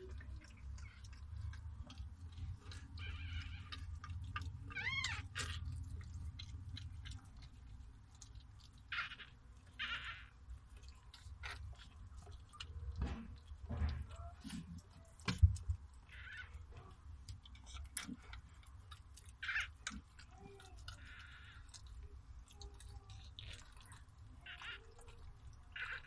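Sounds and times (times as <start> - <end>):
puppy squeaking: 0.0 - 7.5, 8.1 - 10.4, 16.0 - 17.0, 19.2 - 21.8, 22.5 - 26.0
dog licking: 0.0 - 26.0.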